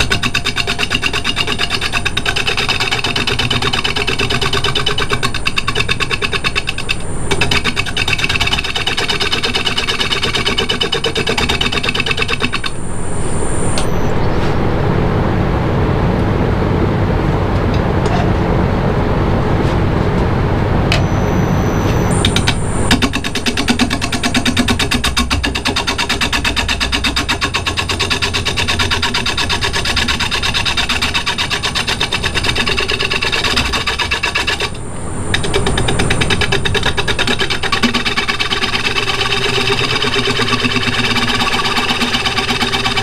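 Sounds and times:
power tool rattling and whining: 0.0s - 12.9s, 22.2s - 43.0s
power tool deep rumble: 0.0s - 43.0s.

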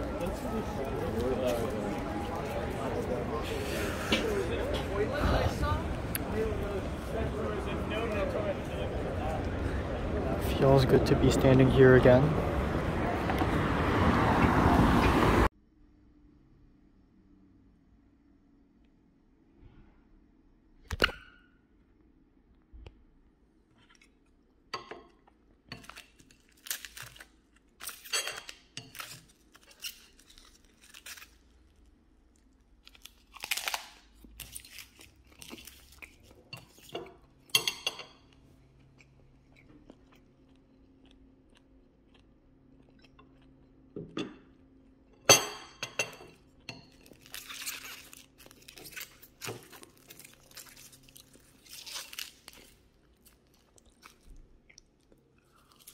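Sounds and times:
crunchy chewing: 25.8s - 37.5s, 38.2s - 44.0s, 46.6s - 55.9s.

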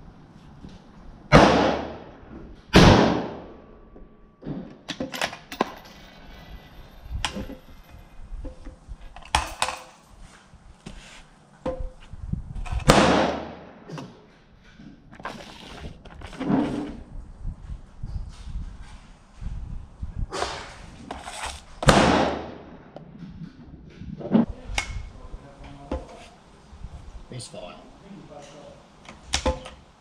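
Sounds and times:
rifle shots echoing: 1.3s - 3.6s, 12.8s - 13.9s, 21.8s - 22.9s.

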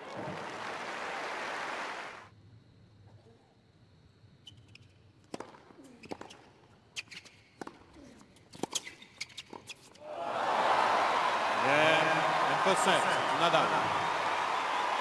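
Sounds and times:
crowd cheering and applauding: 0.0s - 2.3s, 10.0s - 15.0s
shoe squeaks: 5.9s - 10.0s.

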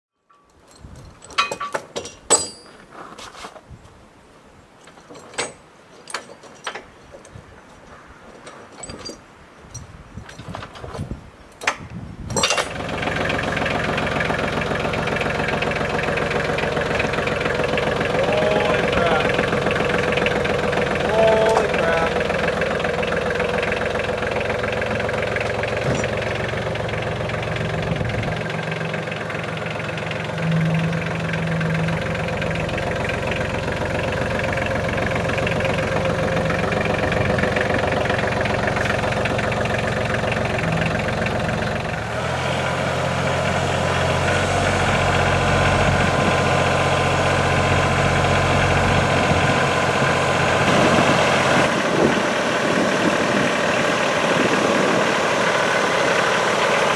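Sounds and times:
tractor diesel engine running: 12.0s - 56.9s.

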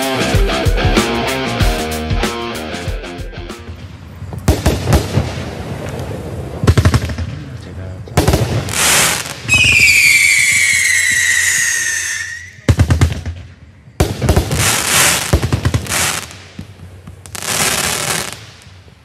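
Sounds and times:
firework bursts with crackle: 3.6s - 19.0s
sharp firework bangs: 3.7s - 18.8s
falling firework whistle: 8.8s - 12.7s.

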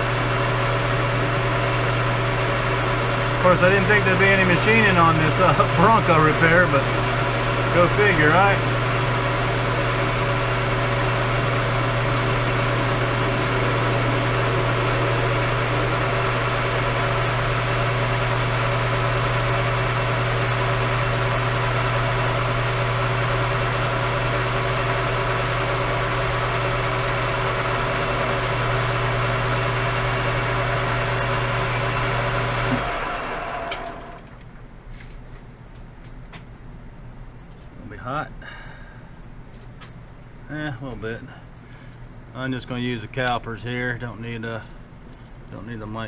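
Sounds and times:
metal lathe motor and gear hum: 0.0s - 34.3s.

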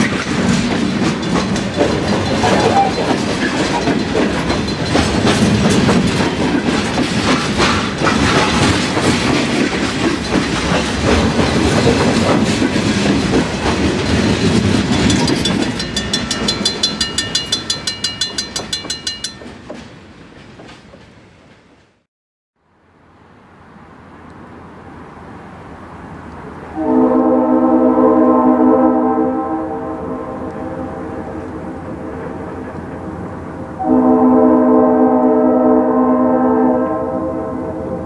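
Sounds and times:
train wheels clattering on rails: 0.0s - 22.1s
crossing bell dinging: 1.0s - 5.9s, 14.0s - 19.9s.

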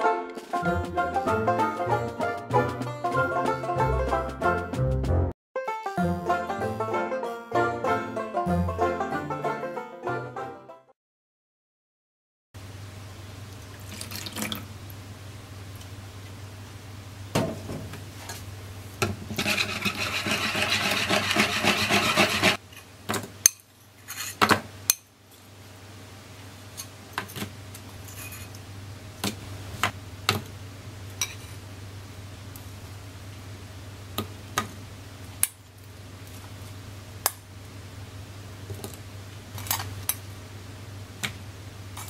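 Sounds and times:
milk poured and stirred: 13.6s - 14.7s, 19.4s - 22.6s.

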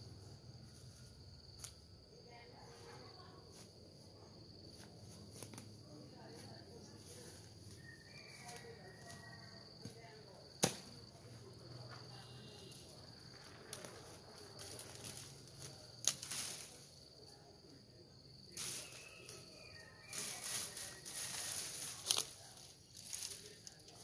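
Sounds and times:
high insect trill: 0.0s - 24.0s
dry leaves and twigs rustling: 0.4s - 1.9s, 2.7s - 17.5s, 18.2s - 24.0s
sharp twig cracks: 1.6s - 1.9s, 10.6s - 10.9s, 16.0s - 16.7s.

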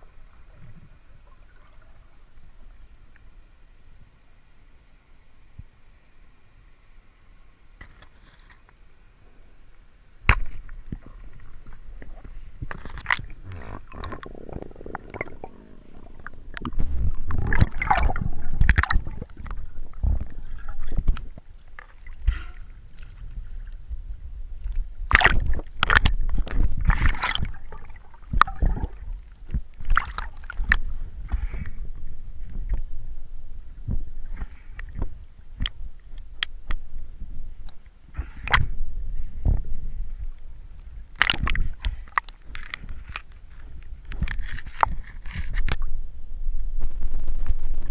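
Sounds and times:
water sloshing and gurgling: 0.0s - 3.4s, 10.3s - 46.1s
water splashing: 10.4s - 24.0s, 24.8s - 31.4s, 41.1s - 43.2s.

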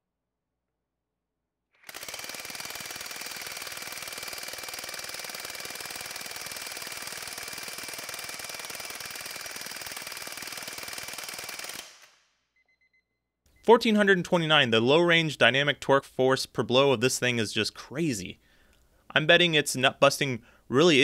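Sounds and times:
impact wrench hammering: 1.9s - 12.1s.

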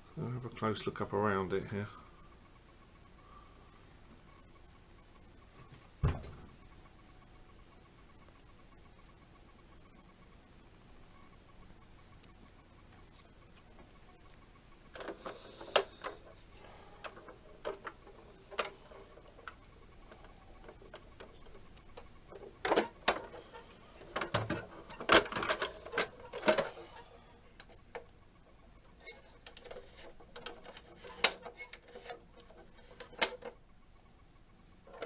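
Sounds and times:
plastic toy truck clicks and rattles: 14.9s - 16.3s, 24.0s - 26.8s, 29.3s - 33.6s.

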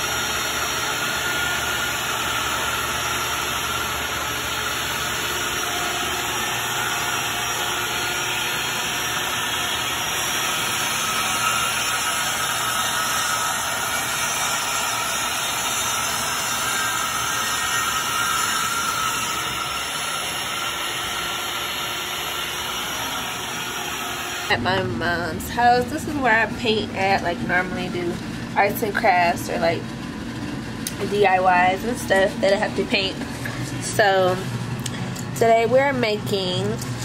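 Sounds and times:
panel saw whirring: 0.0s - 24.5s.

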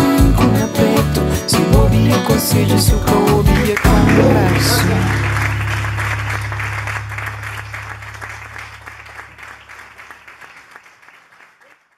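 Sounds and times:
audience applauding: 3.7s - 11.9s
band sustaining low note: 3.9s - 10.0s.

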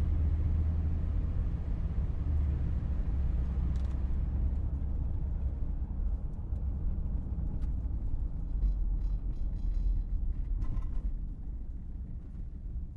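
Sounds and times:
faint light ticks: 3.7s - 4.1s.

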